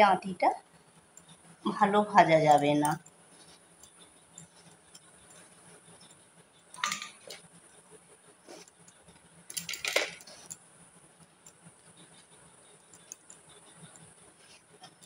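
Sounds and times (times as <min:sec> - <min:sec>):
faint vegetable cutting ticks: 0:01.0 - 0:01.7.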